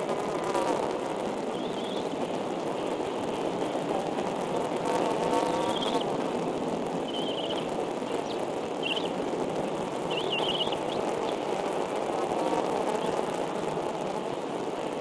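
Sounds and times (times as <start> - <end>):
steady rushing noise: 0.0 - 15.0
eaglet chicks peeping: 5.5 - 6.2, 7.0 - 9.2, 10.0 - 11.5.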